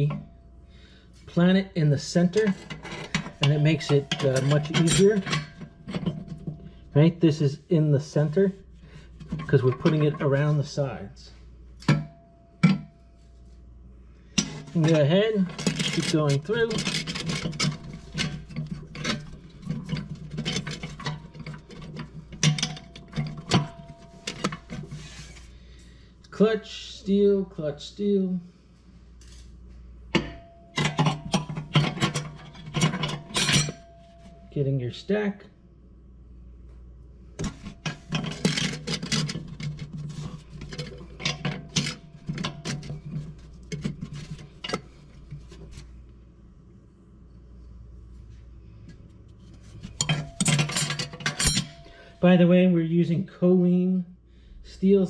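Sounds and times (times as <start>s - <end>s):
steel plates ringing: 2.0s - 7.4s, 14.4s - 25.2s, 30.2s - 34.6s, 49.9s - 52.3s
clutch plates clicking and clinking: 37.4s - 45.7s, 49.8s - 52.0s.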